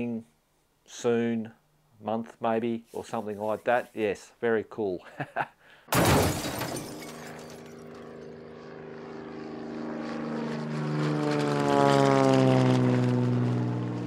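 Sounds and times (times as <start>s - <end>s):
engine passing by: 7.9s - 14.0s.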